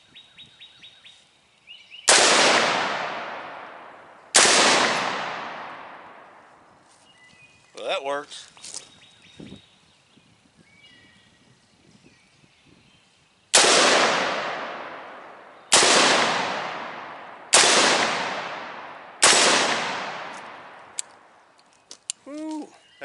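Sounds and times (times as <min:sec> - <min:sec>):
gunshots with echo: 0:02.1 - 0:06.2, 0:13.6 - 0:20.9.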